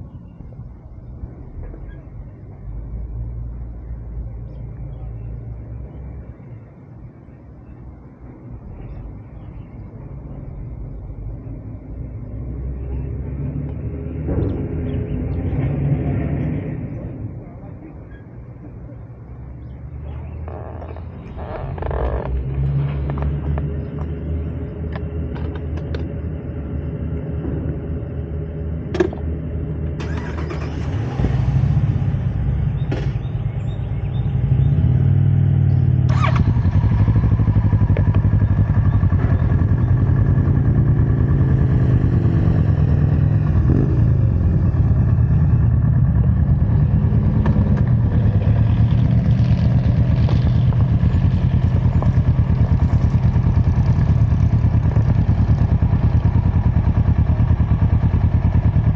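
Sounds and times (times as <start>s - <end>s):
motorcycle engine idling: 35.6s - 58.9s.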